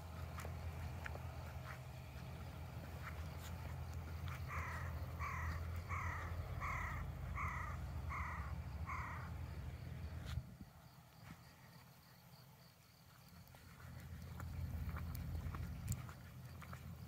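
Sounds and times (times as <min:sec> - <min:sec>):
crow cawing: 0:04.2 - 0:09.4.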